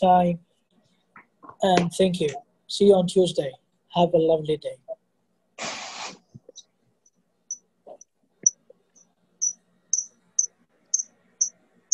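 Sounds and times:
hiss: 5.6 - 6.2
high-pitched chirps: 9.4 - 11.6.

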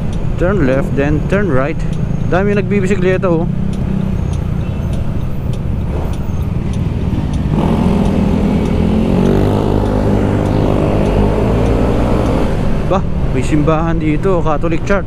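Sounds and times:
road and wind noise: 0.0 - 15.0
scooter engine running: 6.6 - 12.0.

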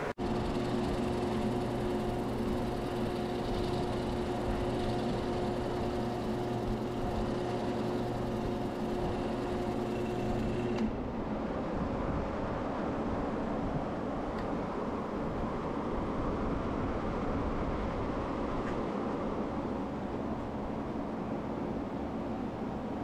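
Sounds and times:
lathe motor whine: 0.0 - 11.0.

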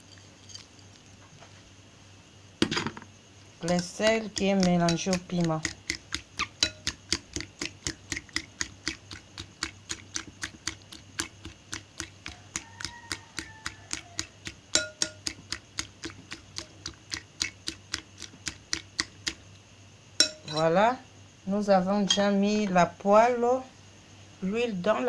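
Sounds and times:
utensil clicking against bowl: 3.6 - 19.4.

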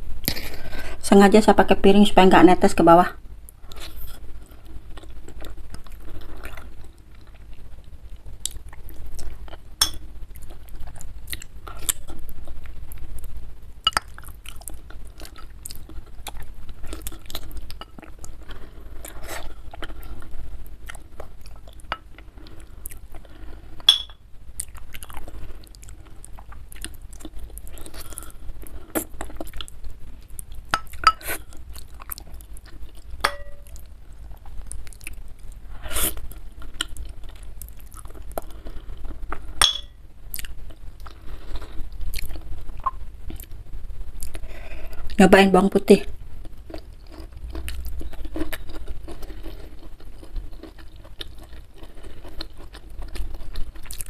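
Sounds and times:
close chewing and biting: 40.3 - 43.5, 46.4 - 54.0
mouth clicks and crunches: 46.4 - 54.0.

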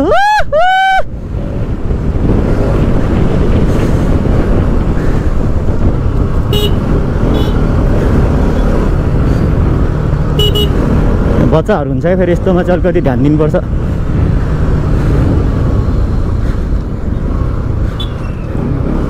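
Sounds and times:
wind rush on microphone: 0.0 - 19.0
motorcycle engine rumble: 1.1 - 19.0
short horn beeps: 6.5 - 7.6, 10.4 - 10.8.

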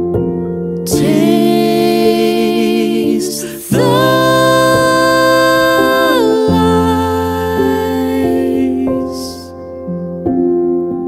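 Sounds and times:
woman singing long notes: 0.9 - 9.5
sustained chords: 0.9 - 9.6.

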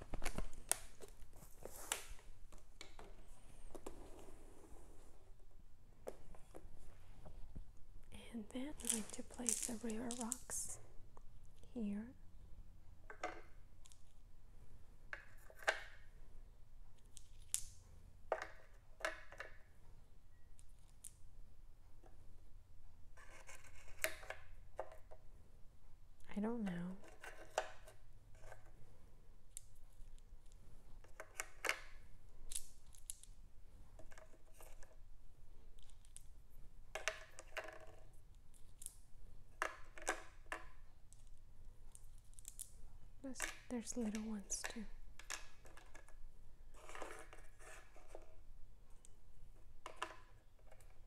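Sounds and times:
rocks clicking together: 8.7 - 10.6.

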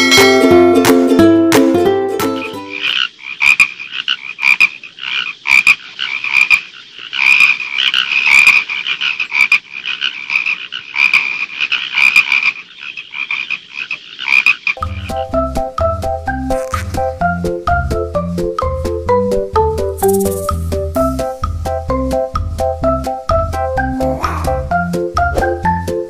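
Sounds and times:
marimba-like music: 0.0 - 2.7, 14.8 - 26.0
frog croaking: 2.6 - 15.3, 16.4 - 17.2, 23.8 - 24.8.

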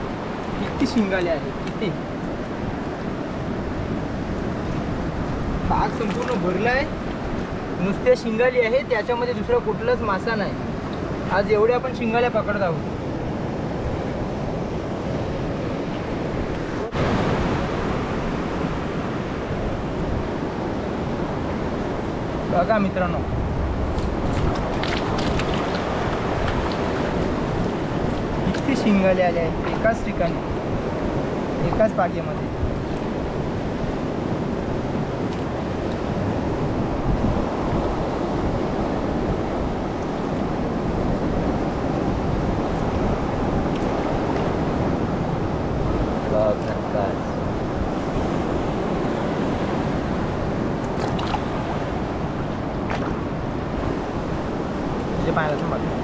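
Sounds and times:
sea waves washing against rocks: 0.0 - 56.0
wind buffeting the microphone: 0.0 - 56.0.

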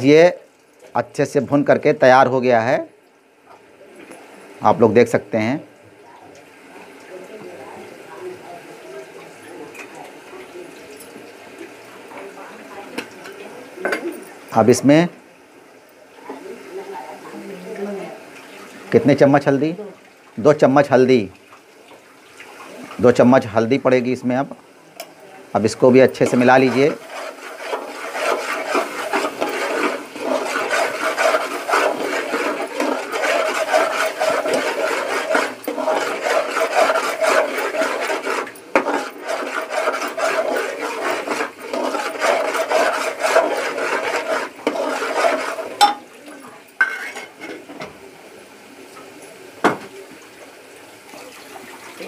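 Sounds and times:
ladle scraping a pot: 25.9 - 46.1, 46.8 - 47.7.

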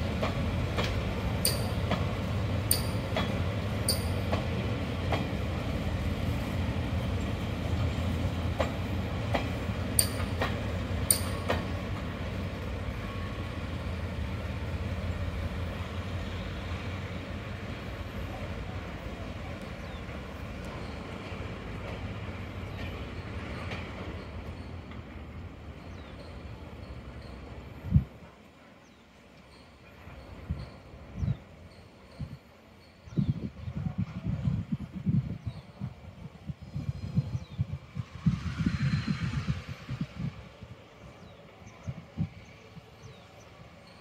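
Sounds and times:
train wheels clicking: 0.0 - 5.8, 7.2 - 12.7
train rumbling past: 0.0 - 44.0.

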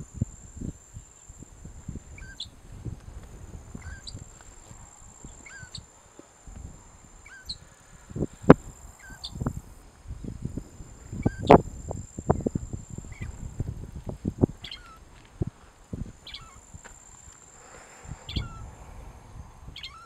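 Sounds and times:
bird giving short faint calls: 17.6 - 18.7, 19.8 - 20.0.

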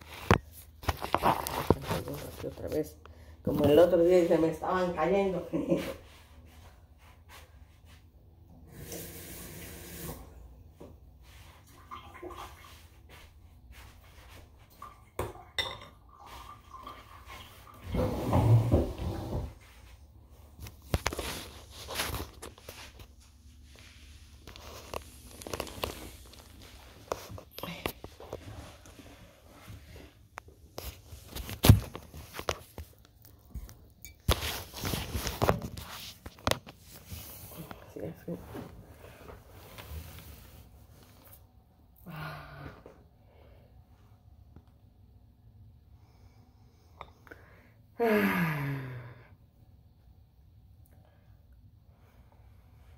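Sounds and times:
kitchen tap running: 8.7 - 10.3
dishes and utensils clinking: 15.5 - 16.0
cloth rustling: 19.7 - 33.1, 34.2 - 37.7.

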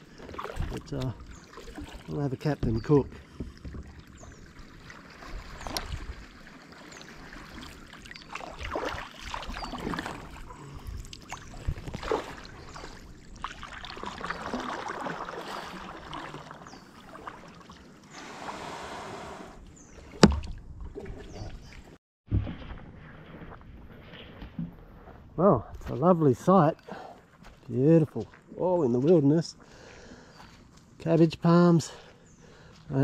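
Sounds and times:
kayak paddle splashing in water: 0.0 - 2.2, 3.4 - 22.8
hull scraping on sand: 18.1 - 20.0.

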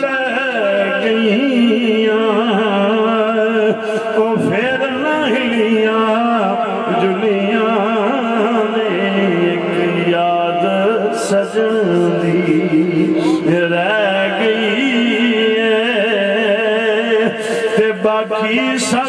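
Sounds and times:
man singing devotional verse: 0.0 - 19.0
steady held drone tone: 6.4 - 18.1.

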